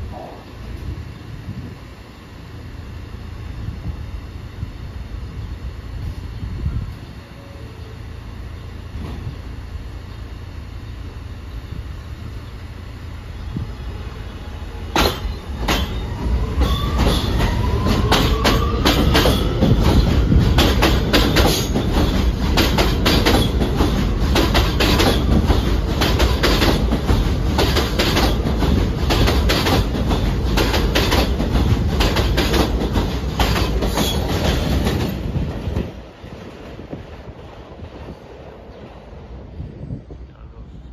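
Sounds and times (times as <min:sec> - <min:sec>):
subway train rumble: 0:00.0 - 0:40.9
wheel clacks over rail joints: 0:16.6 - 0:35.2.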